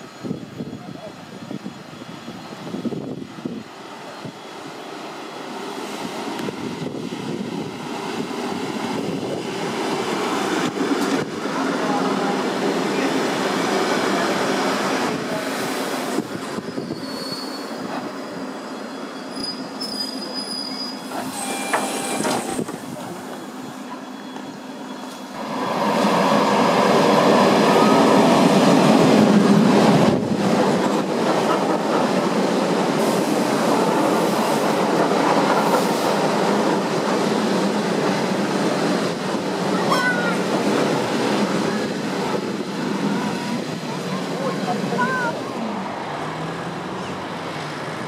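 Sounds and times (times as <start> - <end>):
train wheels squealing: 0.0 - 4.8, 16.3 - 25.4
electric train rumbling: 0.0 - 48.0
second train passing loudly: 0.0 - 48.0.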